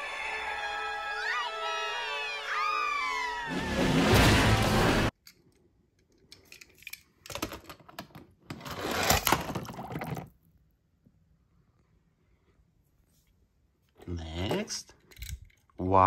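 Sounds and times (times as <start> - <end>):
loud film soundtrack: 0.0 - 5.1.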